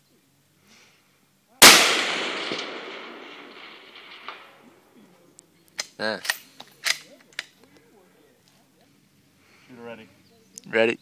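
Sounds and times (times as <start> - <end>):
rifle shot: 1.6 - 4.7
long rolling echo: 1.6 - 4.9.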